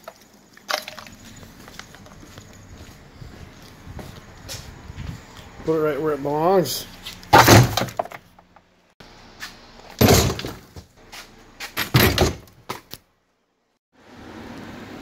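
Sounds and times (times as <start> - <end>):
engine parts dropped into plastic bucket: 0.0 - 1.2, 7.3 - 8.3, 10.0 - 10.9, 11.8 - 12.8.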